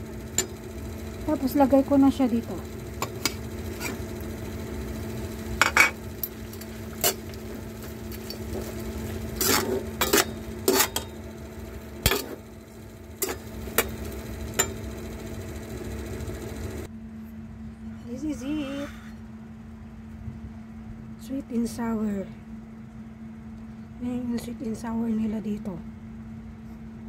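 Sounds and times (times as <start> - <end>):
steady low hum: 0.0 - 27.0
metal spatula scraping a pan: 3.1 - 4.1, 5.6 - 11.1.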